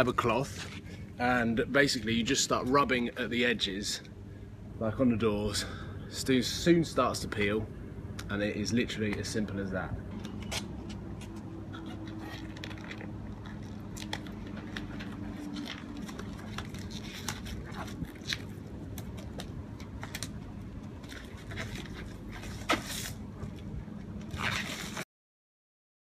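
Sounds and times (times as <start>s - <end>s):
low hum: 0.0s - 25.0s
peel-off coating crackling: 10.1s - 25.0s.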